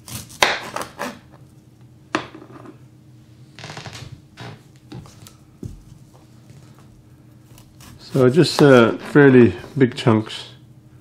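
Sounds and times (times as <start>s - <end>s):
knife chopping on cutting board: 0.0s - 1.2s.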